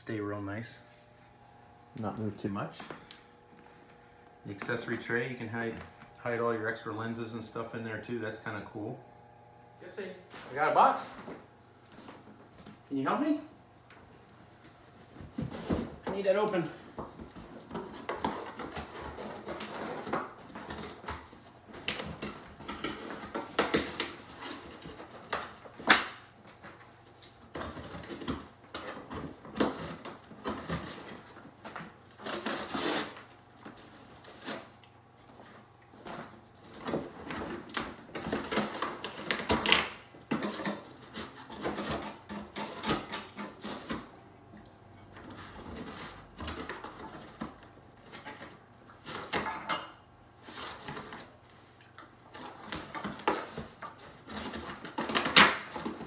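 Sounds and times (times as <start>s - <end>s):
dog scraping cardboard box: 32.2s - 33.3s.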